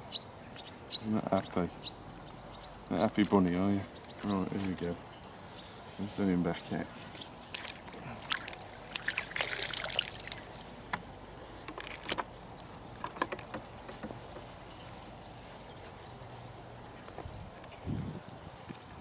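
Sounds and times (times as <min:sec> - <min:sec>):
water splashing and trickling: 0:07.5 - 0:10.8.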